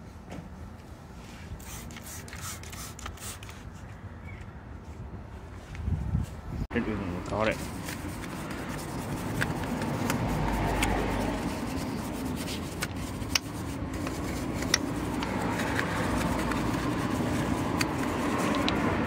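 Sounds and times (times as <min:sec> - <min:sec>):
brush tapping wheel: 0:07.2 - 0:19.0
brush scrubbing wheel: 0:07.3 - 0:19.0.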